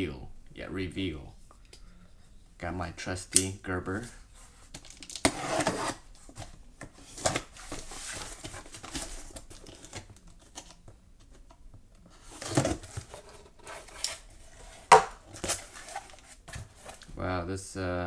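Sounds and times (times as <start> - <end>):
cardboard rustling: 4.0 - 17.1
knife scraping cardboard: 5.2 - 6.0, 12.3 - 16.9.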